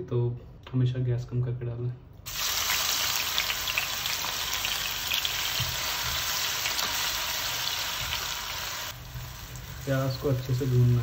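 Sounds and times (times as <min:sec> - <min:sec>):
onion sizzling in oil: 0:02.3 - 0:11.0.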